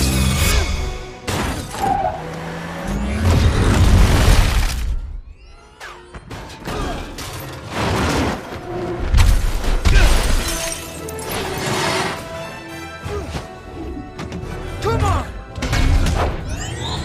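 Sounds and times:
film music score: 0:00.0 - 0:17.0
glass shattering: 0:09.9 - 0:11.6.

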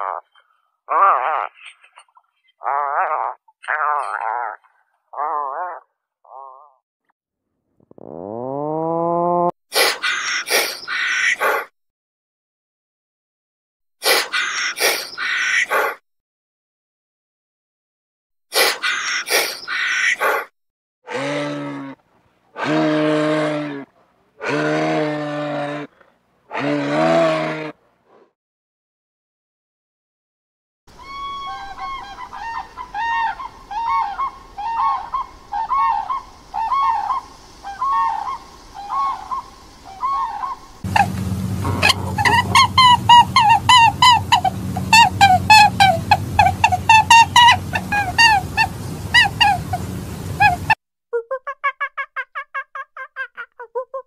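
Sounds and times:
harsh raspy animal call: 0:00.0 - 0:06.8, 0:21.1 - 0:27.8, 0:40.3 - 0:49.9
low hum: 0:40.9 - 0:50.7.

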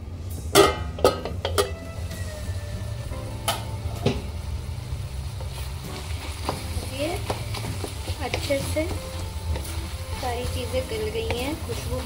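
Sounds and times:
metal lid clanking against pot: 0:00.5 - 0:01.8.

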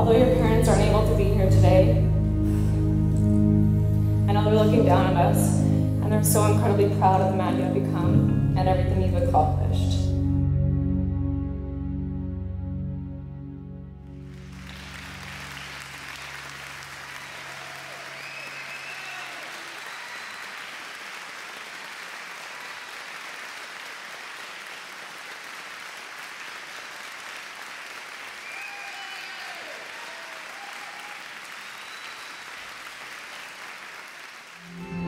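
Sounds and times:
crowd applauding: 0:14.1 - 0:35.0.

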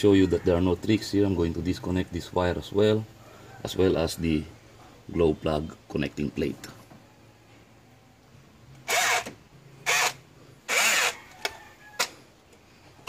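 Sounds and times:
power tool bursts on nut: 0:08.8 - 0:11.4.

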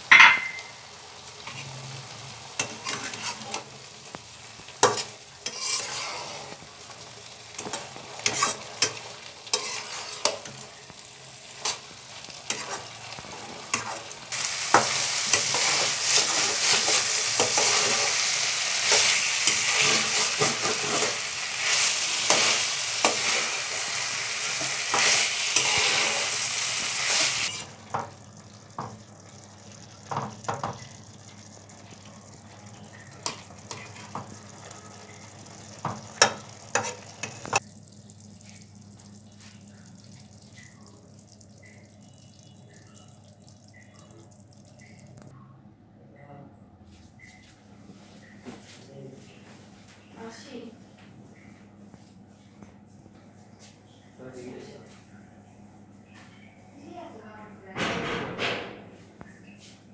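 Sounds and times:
vegetables sizzling in a wok: 0:00.0 - 0:45.1
metal spatula scraping and tapping pan: 0:00.1 - 0:00.7, 0:04.8 - 0:06.6, 0:07.6 - 0:10.6, 0:35.9 - 0:37.6.

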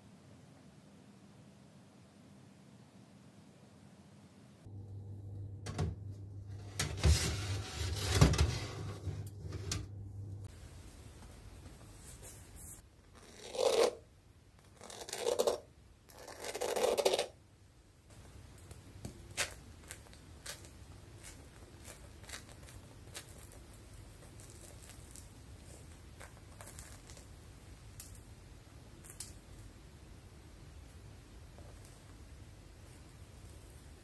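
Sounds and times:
bun crust crackling: 0:18.2 - 0:29.6.

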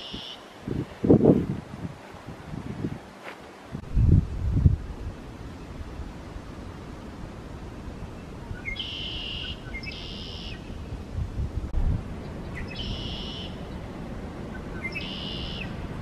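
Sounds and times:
wind rumble on microphone: 0:00.0 - 0:16.0
blackbird singing buzzy trill: 0:08.5 - 0:10.9, 0:12.2 - 0:13.8, 0:14.5 - 0:15.8.

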